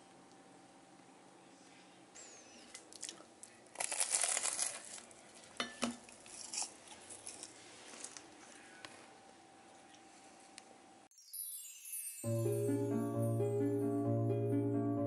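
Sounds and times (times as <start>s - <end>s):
pastry crackling as bitten: 2.7s - 5.5s.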